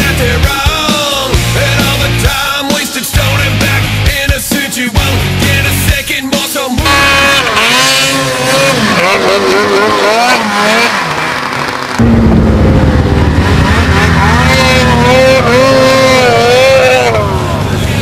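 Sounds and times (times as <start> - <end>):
snowmobile engine revving: 6.8 - 18.0.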